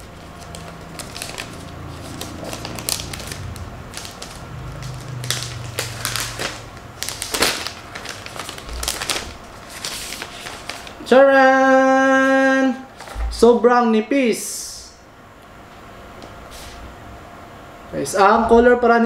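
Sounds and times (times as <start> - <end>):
plastic wrap crinkling: 0.0 - 11.1.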